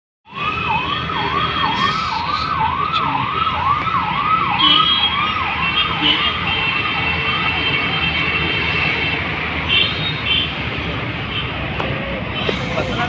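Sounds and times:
electronic siren sweeping: 0.3 - 5.6
road traffic noise: 0.3 - 13.0.

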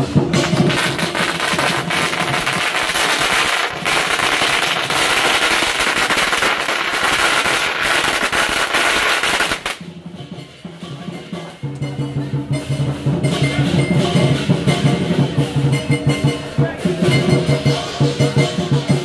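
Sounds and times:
string of firecrackers crackling: 0.0 - 11.9.

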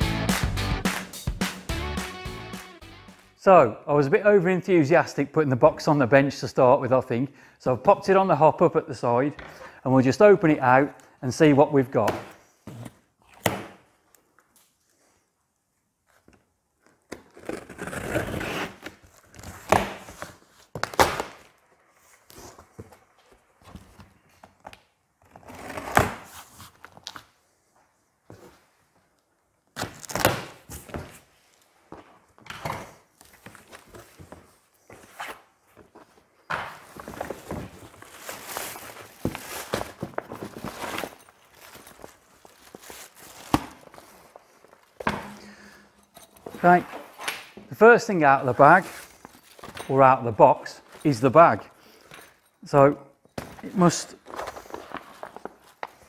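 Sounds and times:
fabric bag rustling: 36.8 - 45.0
plastic packaging crinkling: 37.0 - 45.0.

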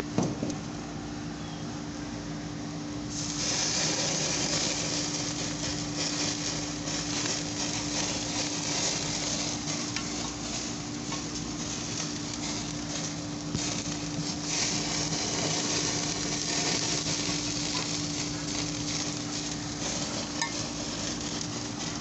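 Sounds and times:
low steady hum: 0.0 - 22.0
ribs sizzling on a grill: 3.0 - 22.0
sauce dripping onto flames: 3.1 - 22.0.

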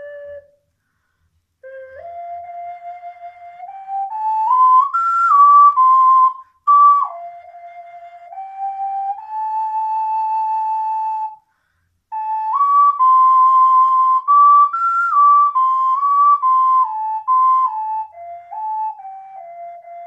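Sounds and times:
ocarina melody: 0.0 - 11.5, 12.1 - 20.0.

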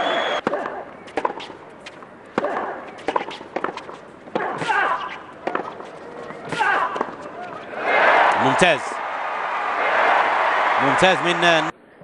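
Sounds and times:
shoes squeaking on court: 0.2 - 7.8
tennis ball hit with rackets: 0.4 - 7.6.

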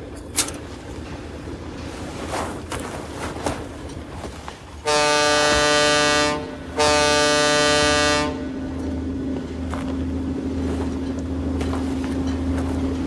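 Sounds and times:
boat horn blast: 4.8 - 8.7.

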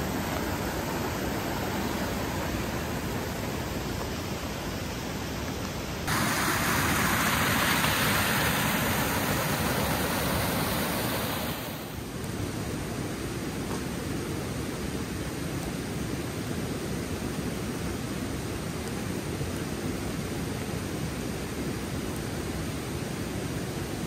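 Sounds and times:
heavy rain rushing: 0.0 - 13.1.

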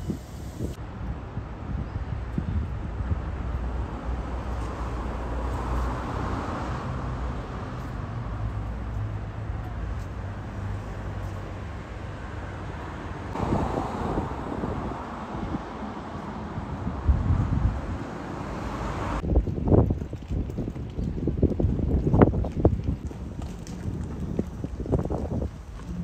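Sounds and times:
wind buffeting microphone: 0.0 - 6.4, 13.3 - 26.0
low engine hum: 0.0 - 26.0.

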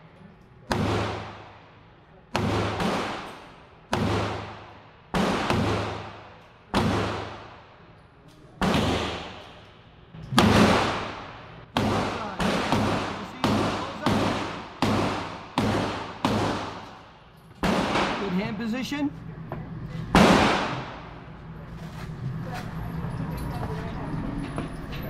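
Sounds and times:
pistol shots echoing indoors: 0.7 - 1.6, 2.3 - 8.0, 8.6 - 18.4, 20.1 - 21.2.

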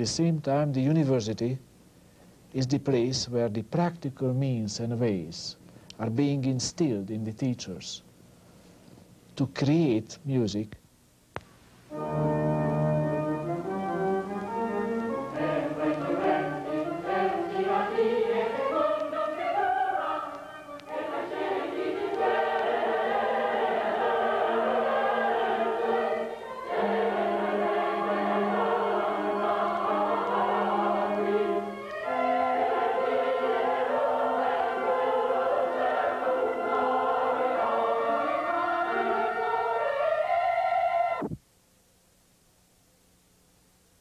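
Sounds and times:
choir singing sustained chords: 11.9 - 41.4.

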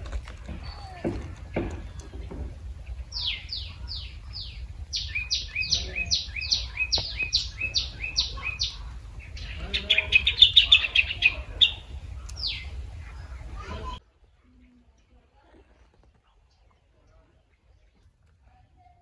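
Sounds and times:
bird chirping: 0.0 - 14.0.

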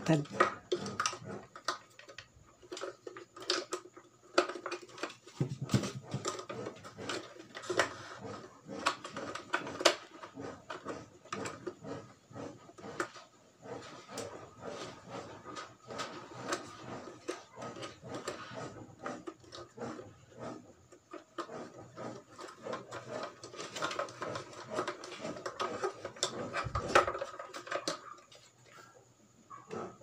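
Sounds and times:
plastic clicks and rattles: 0.1 - 8.1, 22.3 - 28.5.

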